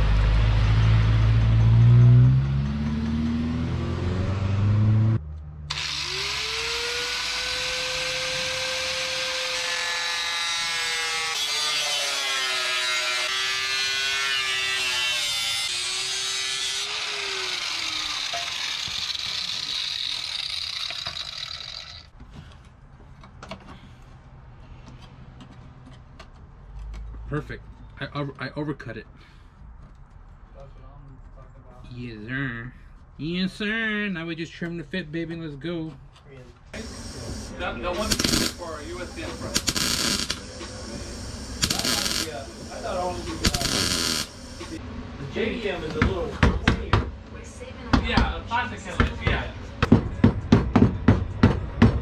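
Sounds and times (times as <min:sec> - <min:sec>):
small vehicle engine revving: 0:00.0 - 0:08.8
angle grinder cutting sheet steel: 0:05.7 - 0:22.1, 0:36.8 - 0:44.8.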